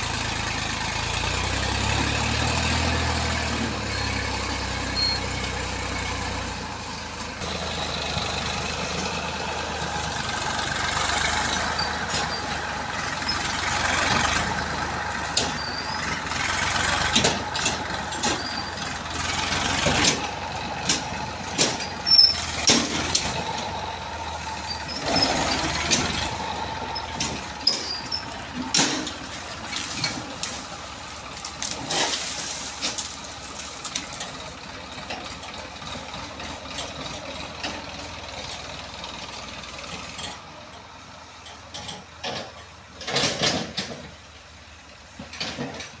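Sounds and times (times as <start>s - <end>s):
tractor diesel engine running: 0.0s - 46.0s
trolley knocking and rattling: 11.4s - 38.7s, 40.0s - 44.2s, 45.2s - 46.0s.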